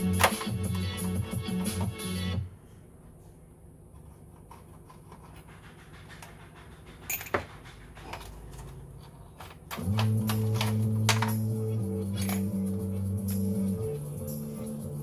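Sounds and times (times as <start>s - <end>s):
music: 0.0s - 2.5s, 9.8s - 15.0s
low steady hum: 7.1s - 15.0s.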